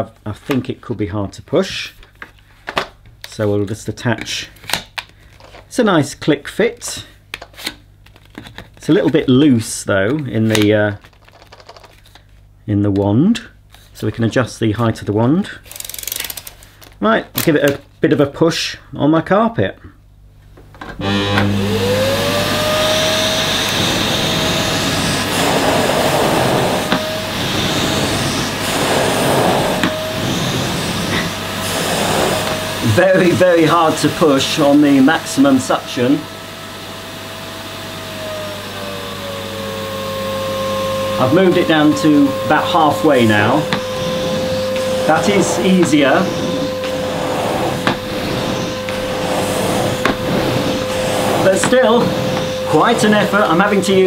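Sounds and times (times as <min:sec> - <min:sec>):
vacuum cleaner motor whine: 0:20.8 - 0:54.0
vacuum nozzle on carpet: 0:21.0 - 0:54.0.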